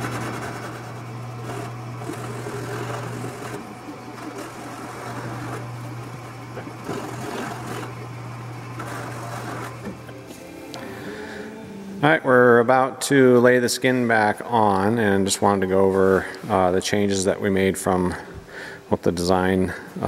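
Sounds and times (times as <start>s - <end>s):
hand sanding metal edge: 0.0s - 10.0s
steady low hum: 0.0s - 20.0s.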